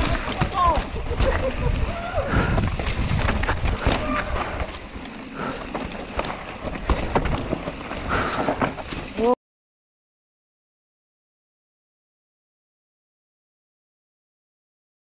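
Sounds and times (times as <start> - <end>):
wind rumbling on microphone: 0.0 - 8.8
bike rattling over bumps: 0.0 - 9.4.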